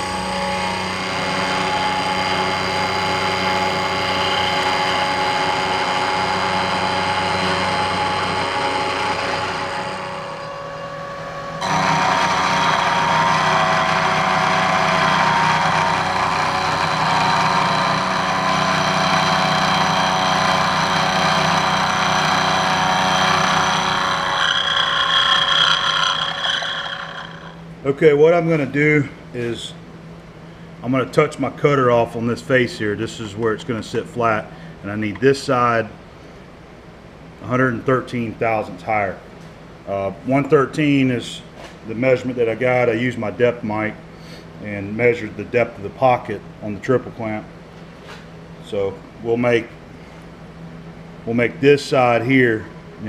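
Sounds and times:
end mill cutting metal: 0:00.0 - 0:27.7
milling machine spindle whine: 0:00.0 - 0:27.7.

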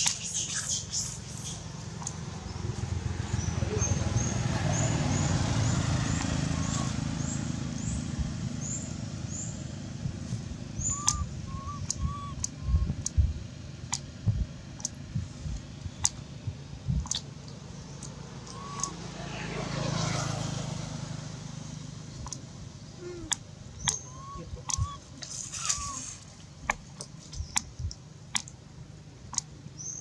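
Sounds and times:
sharp clicks: 0:00.0 - 0:02.2, 0:11.8 - 0:15.0, 0:15.6 - 0:16.2, 0:17.0 - 0:19.0, 0:22.2 - 0:22.5, 0:26.6 - 0:28.6, 0:29.3 - 0:29.6
vehicle passing on road: 0:00.0 - 0:30.0.

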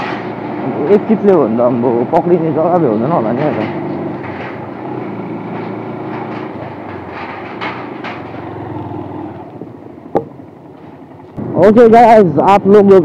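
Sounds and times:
steel plates rattling and clanking: 0:00.0 - 0:01.0, 0:02.2 - 0:09.4
motorcycle engine running: 0:00.0 - 0:13.0.

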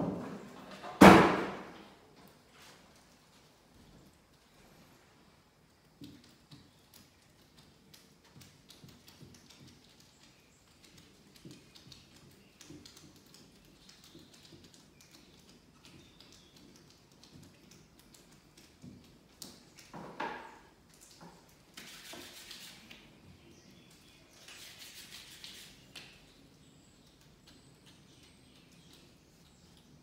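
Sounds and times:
fingers tapping and rubbing putty: 0:05.8 - 0:19.9.

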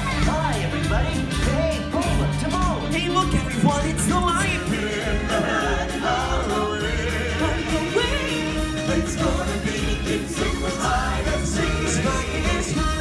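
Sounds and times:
loud amplified backing music: 0:00.0 - 0:13.0
group of singers: 0:04.3 - 0:13.0.

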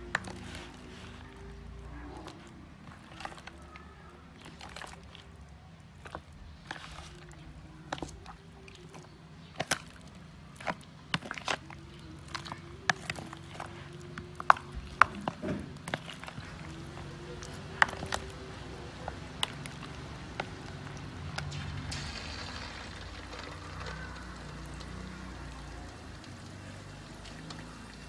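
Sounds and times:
chicken feet clicking together: 0:00.0 - 0:21.6
wet squelches: 0:00.0 - 0:28.0.

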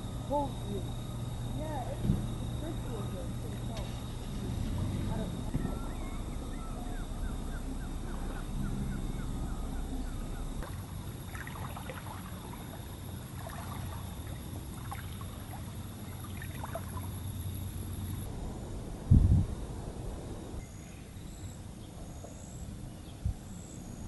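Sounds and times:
small waves on water: 0:00.0 - 0:18.3
faint low hum: 0:00.0 - 0:24.0.

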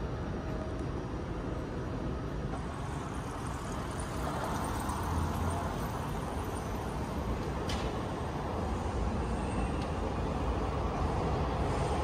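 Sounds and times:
street traffic noise: 0:00.0 - 0:12.0
car passing: 0:02.5 - 0:12.0.

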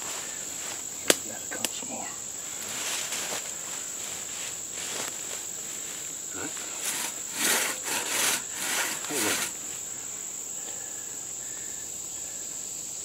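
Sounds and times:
crosscut saw rasping through wood: 0:06.4 - 0:09.6.

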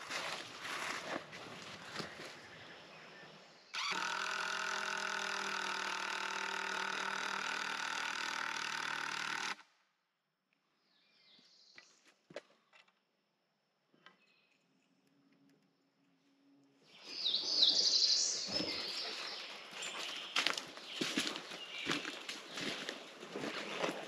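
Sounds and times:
cordless drill driving screw into wood: 0:03.8 - 0:09.7.

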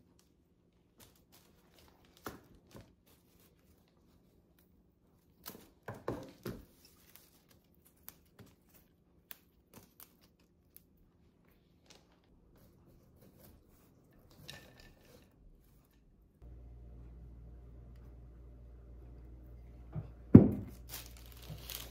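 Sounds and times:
flowers and tissue paper rustling: 0:00.8 - 0:04.5, 0:05.6 - 0:09.0, 0:20.6 - 0:21.9
knocks: 0:20.0 - 0:20.7.

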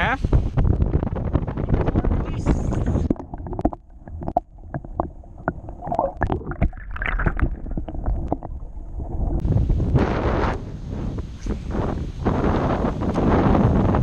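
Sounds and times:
muffled underwater rumble: 0:00.2 - 0:14.0
underwater clicks and gurgles: 0:00.5 - 0:10.6
wind hiss: 0:09.4 - 0:14.0.

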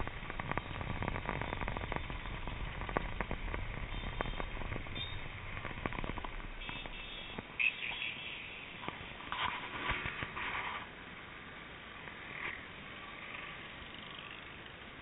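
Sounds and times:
handling crackles and clicks: 0:00.0 - 0:07.5
low wind rumble: 0:00.0 - 0:07.6.

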